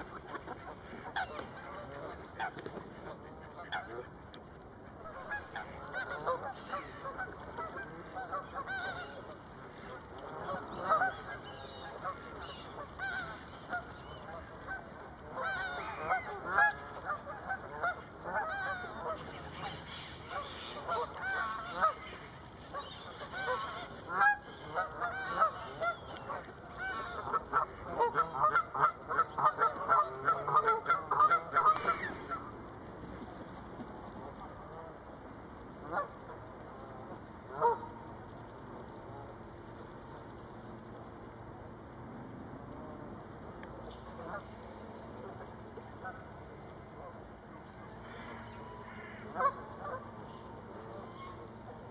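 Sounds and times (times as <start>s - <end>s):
geese honking: 0.0s - 4.1s, 4.9s - 32.5s, 35.8s - 38.0s, 44.0s - 47.2s, 47.8s - 51.9s.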